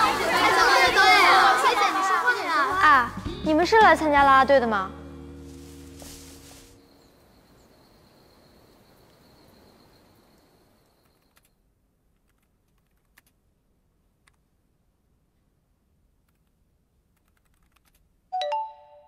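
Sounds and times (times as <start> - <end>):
laptop keys clicking: 11.0 - 11.5, 12.2 - 13.4, 16.2 - 18.0.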